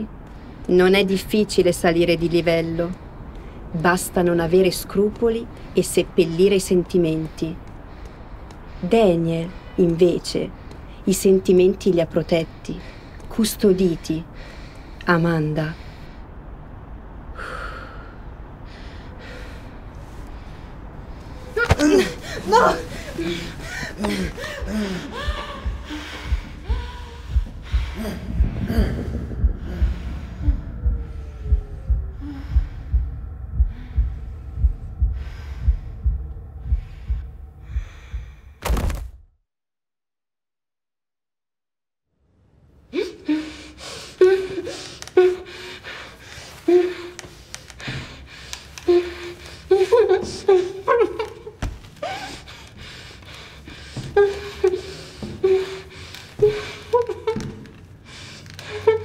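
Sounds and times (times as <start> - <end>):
low hum: 15.8 - 38.6
heartbeat thumps: 21.8 - 38.6.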